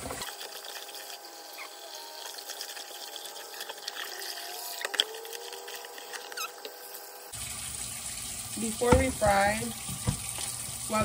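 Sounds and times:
water running in kitchen sink: 0.0s - 11.0s
small squeaks: 1.5s - 2.4s, 4.1s - 7.1s.

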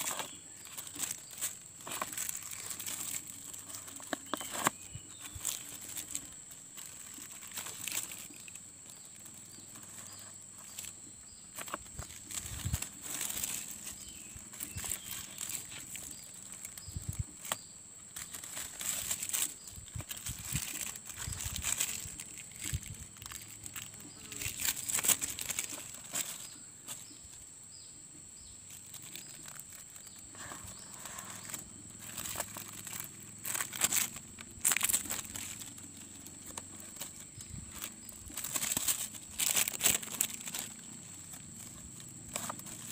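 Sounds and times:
plastic crinkling: 0.0s - 27.4s, 28.6s - 42.9s.

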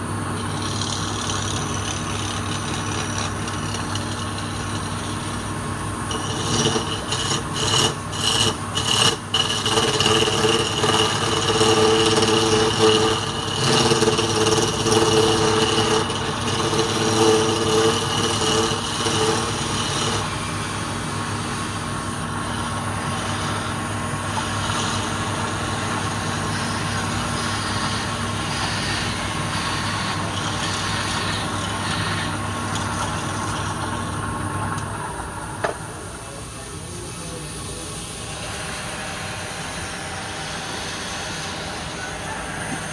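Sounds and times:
steel scraper scraping wood: 0.0s - 34.1s
pitched whine of cutting: 0.0s - 42.9s
wood lathe motor hum: 0.0s - 42.9s.

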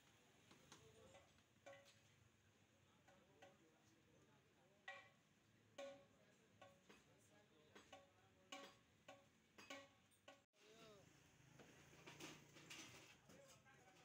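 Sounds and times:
faint clinks of metal plates: 12.0s - 13.2s.

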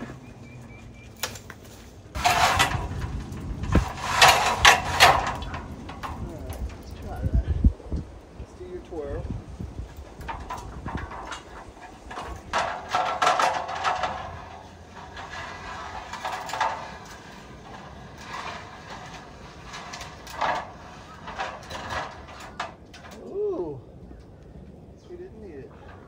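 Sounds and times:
ladder knocking against stone: 2.2s - 6.8s, 10.2s - 23.2s.

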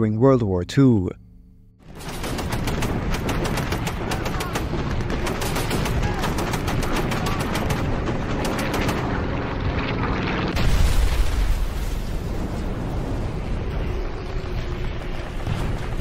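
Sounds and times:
anti-aircraft guns firing rapidly: 1.8s - 10.6s.

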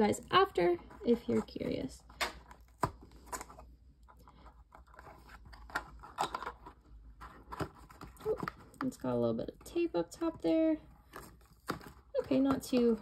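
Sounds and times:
cardboard crinkling: 0.0s - 13.0s.

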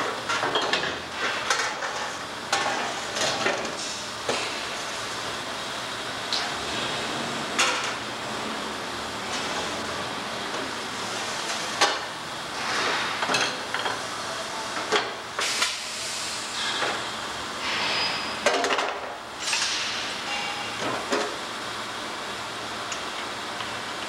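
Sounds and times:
bending machine hissing: 12.4s - 18.5s, 19.3s - 20.8s.

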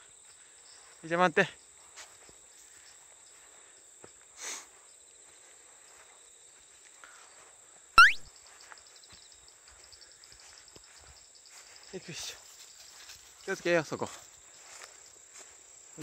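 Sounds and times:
loud upward squeak: 8.0s - 8.2s.

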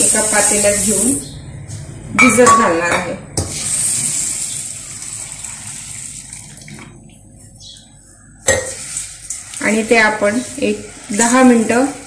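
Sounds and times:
water pouring into steel bowl: 3.5s - 6.9s.

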